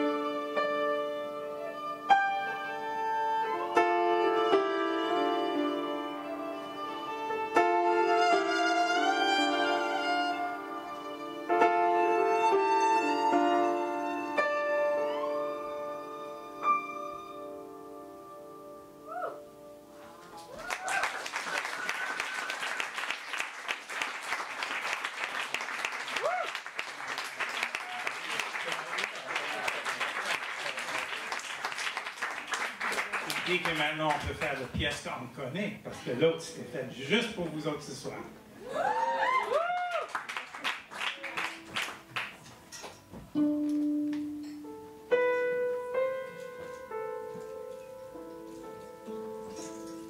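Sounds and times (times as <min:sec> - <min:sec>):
violin: 0:00.0 - 0:18.2
piano chords: 0:00.0 - 0:20.6, 0:41.2 - 0:50.0
crowd whooping: 0:19.0 - 0:19.4, 0:20.3 - 0:23.5, 0:25.9 - 0:31.1, 0:38.6 - 0:40.5
audience applauding: 0:20.2 - 0:34.8, 0:38.6 - 0:42.6.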